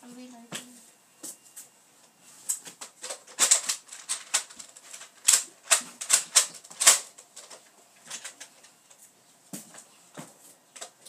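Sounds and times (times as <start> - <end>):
plastic toy blaster clicking: 3.1 - 7.5.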